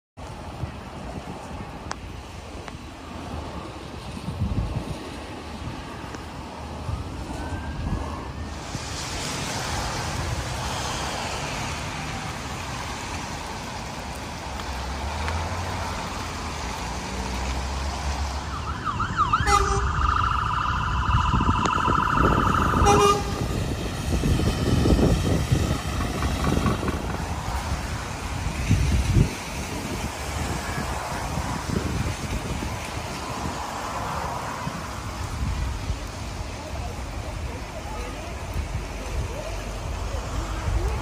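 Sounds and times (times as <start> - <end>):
low rumble of vehicle and wind: 0.2 - 41.0
fire engine siren: 6.6 - 9.9, 18.2 - 25.8.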